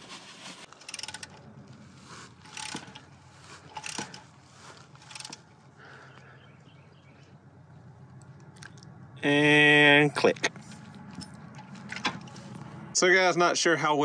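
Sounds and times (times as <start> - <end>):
socket ratchet clicking: 0.7 - 1.4, 2.4 - 4.3, 5.0 - 5.5.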